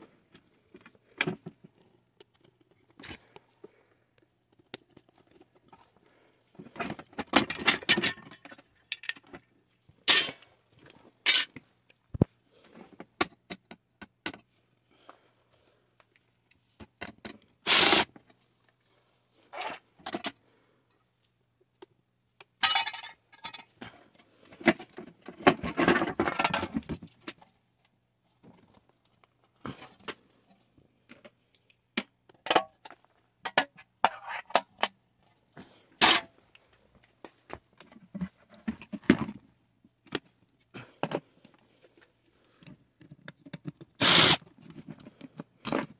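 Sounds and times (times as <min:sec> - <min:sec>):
metal parts clanking and scraping: 0:06.7 - 0:09.4, 0:10.0 - 0:10.5, 0:11.2 - 0:11.6, 0:19.5 - 0:20.4, 0:24.7 - 0:26.9, 0:36.0 - 0:36.3.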